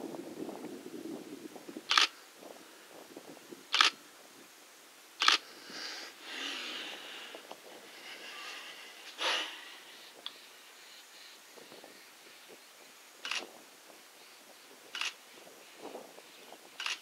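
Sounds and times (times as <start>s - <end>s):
camera shutter clicks: 1.9s - 2.1s, 3.8s - 4.0s, 5.2s - 5.4s, 13.2s - 13.5s, 15.0s - 15.2s, 16.8s - 17.0s.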